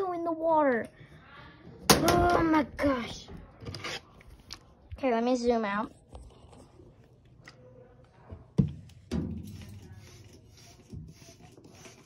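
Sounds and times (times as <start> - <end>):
spray bottle squirting water: 9.6 - 12.0.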